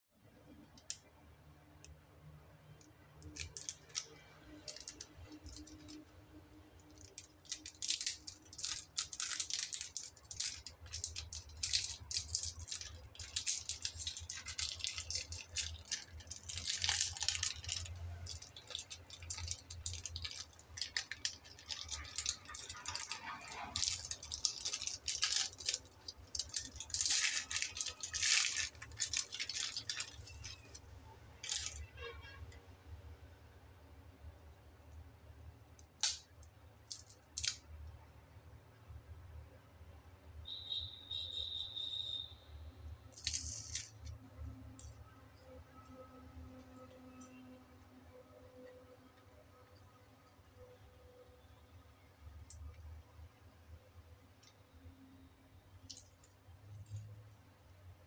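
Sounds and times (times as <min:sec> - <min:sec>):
foil wrapper crinkling: 0:03.2 - 0:06.0, 0:06.9 - 0:32.1, 0:43.1 - 0:44.2.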